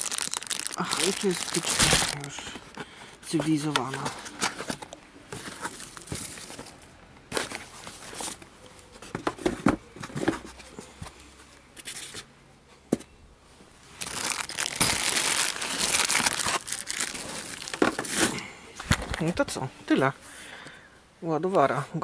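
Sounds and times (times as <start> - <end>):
plastic crinkling: 0.0 - 2.8, 14.0 - 18.3
cardboard rustling and scraping: 1.6 - 12.3, 14.0 - 19.3.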